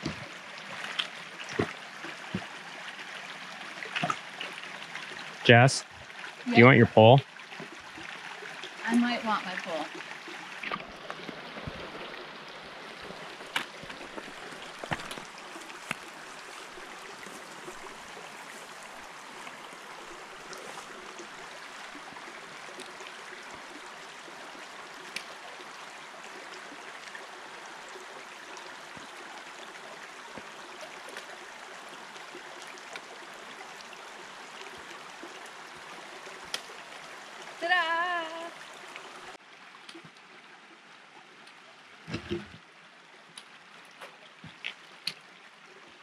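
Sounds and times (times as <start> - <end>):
creek babbling over stones: 0.0 - 46.0.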